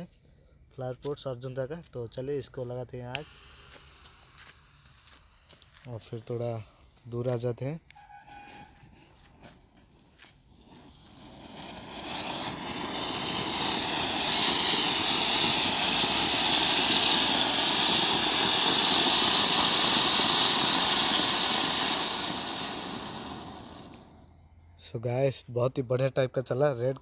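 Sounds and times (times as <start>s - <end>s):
firework fountain hissing sparks: 3.1s - 4.6s, 10.5s - 24.3s.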